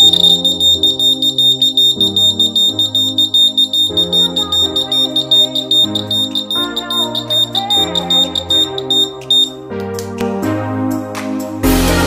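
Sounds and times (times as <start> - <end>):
piezo buzzer high-pitched beep: 0.0 - 9.5.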